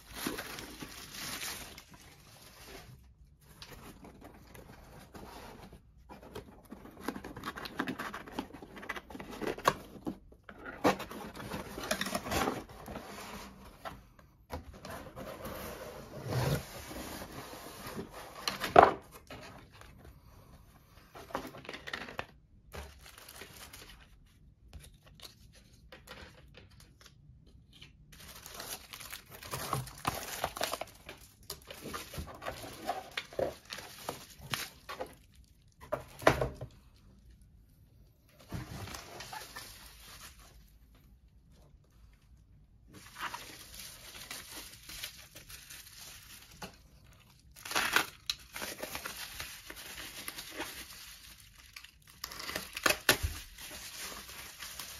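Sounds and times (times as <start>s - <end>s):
bubble wrap crinkling: 0.0s - 3.1s, 28.1s - 35.8s, 39.0s - 40.7s, 43.0s - 54.9s
cardboard scraping and tearing: 14.8s - 19.4s.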